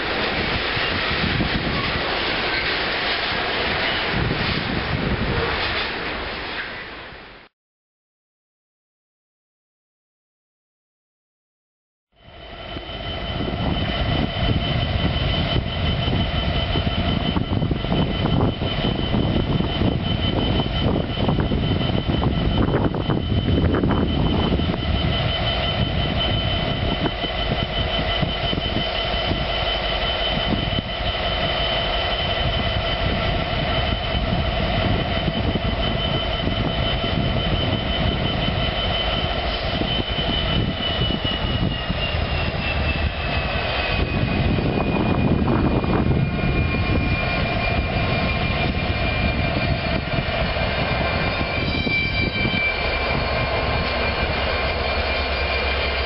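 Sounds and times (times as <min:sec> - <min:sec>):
diesel locomotive engine rumble: 0:00.0 - 0:07.5, 0:12.2 - 0:56.0
turbocharger whine: 0:12.2 - 0:56.0.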